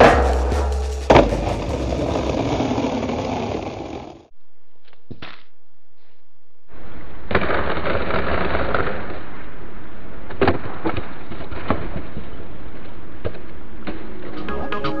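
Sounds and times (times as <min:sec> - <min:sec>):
skateboard and body hitting pavement: 0:00.0 - 0:04.2
skateboard grinding on concrete: 0:00.0 - 0:04.2.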